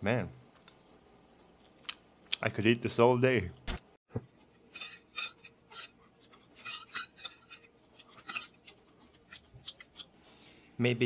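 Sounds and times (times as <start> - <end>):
cutlery scraping on plate: 4.7 - 10.1.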